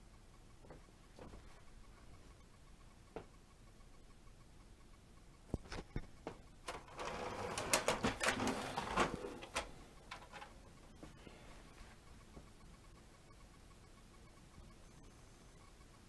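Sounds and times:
plastic toy clicking and rattling: 0:06.7 - 0:10.6.

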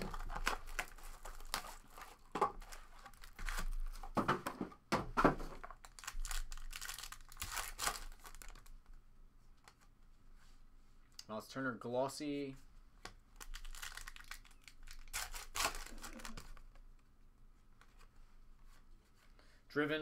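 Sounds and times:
foil wrapper crinkling and tearing: 0:00.0 - 0:04.1, 0:05.6 - 0:08.8, 0:13.4 - 0:16.6.

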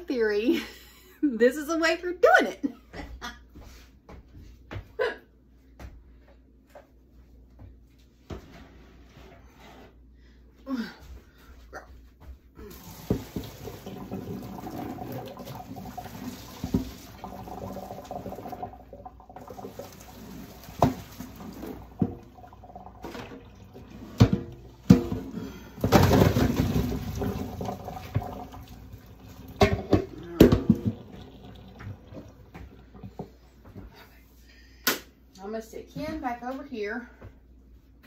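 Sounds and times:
water pouring into a colander: 0:12.6 - 0:33.4
metal pot clanking: 0:20.7 - 0:28.4, 0:29.5 - 0:33.3.

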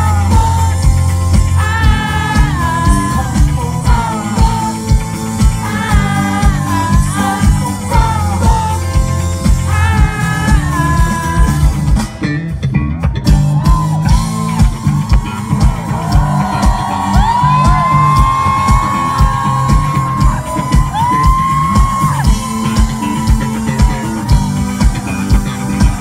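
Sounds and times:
person singing: 0:00.0 - 0:12.2
drum beat: 0:00.0 - 0:12.3, 0:13.1 - 0:26.0
bass guitar: 0:00.0 - 0:26.0
electric guitar: 0:00.0 - 0:26.0.

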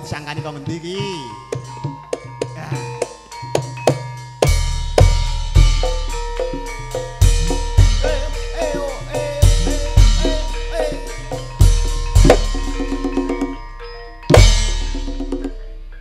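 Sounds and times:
heavy booming drum strikes: 0:04.4 - 0:06.3, 0:09.4 - 0:13.6, 0:14.3 - 0:15.6
melody of short pitched notes: 0:04.4 - 0:16.0.

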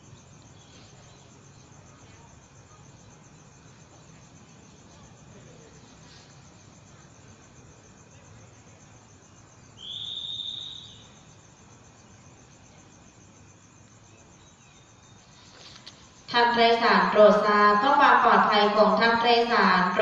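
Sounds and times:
insects trilling: 0:00.0 - 0:20.0
loud high steady tone: 0:09.8 - 0:11.4, 0:16.3 - 0:20.0.

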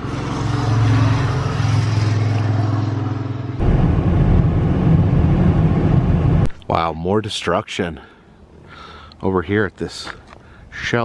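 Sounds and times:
car cabin road noise at speed: 0:00.0 - 0:06.5
low vehicle engine hum: 0:00.0 - 0:06.5.

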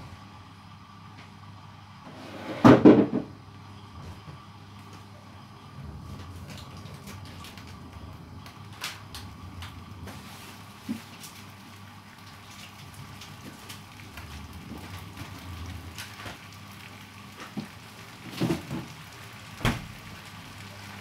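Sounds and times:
knocks: 0:02.6 - 0:03.3
chicken frying in a pan: 0:04.8 - 0:21.0.

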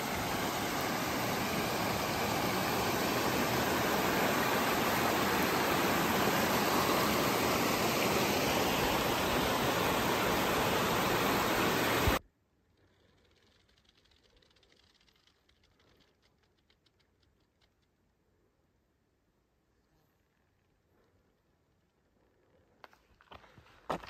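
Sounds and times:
creek running over rocks: 0:00.0 - 0:12.2.

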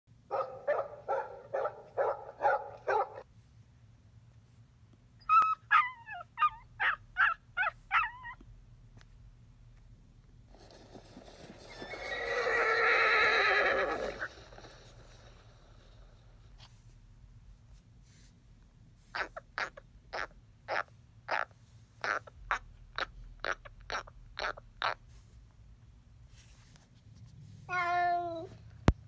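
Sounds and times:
large dog barking: 0:00.3 - 0:03.2
puppy yipping: 0:05.2 - 0:08.4
horse neighing: 0:11.3 - 0:15.4.

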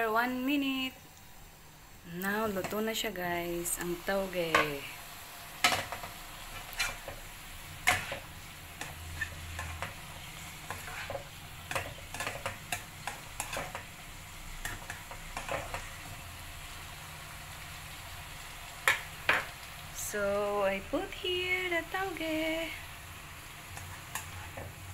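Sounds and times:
food sizzling: 0:00.0 - 0:24.9
spatula scraping a wok: 0:05.6 - 0:16.2, 0:23.4 - 0:24.9.

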